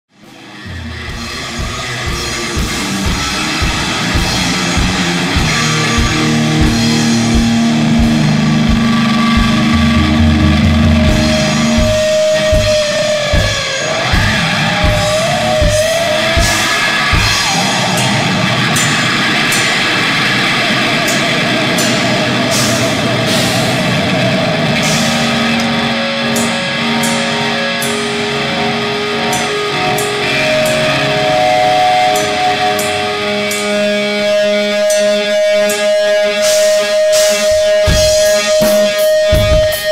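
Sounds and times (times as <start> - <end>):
electric guitar: 0.1 - 39.9
rock band music: 0.1 - 39.9
cymbal hits: 1.2 - 24.2, 34.4 - 39.9.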